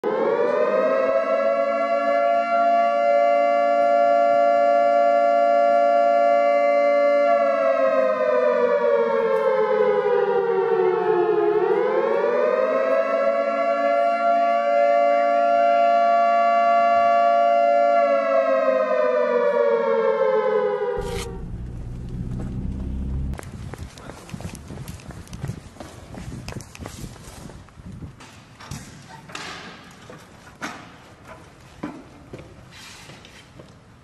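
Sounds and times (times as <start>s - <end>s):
siren wailing: 0.0s - 23.4s
low rumble: 21.0s - 23.6s.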